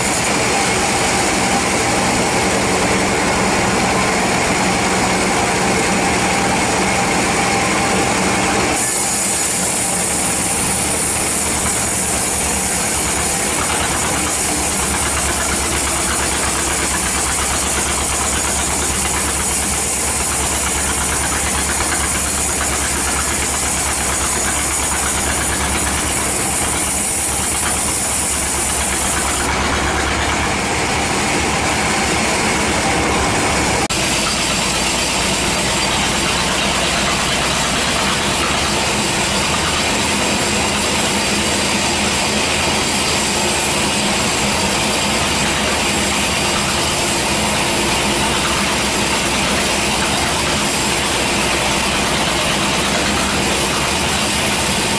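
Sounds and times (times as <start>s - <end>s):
band saw cutting wood: 0.0s - 54.9s.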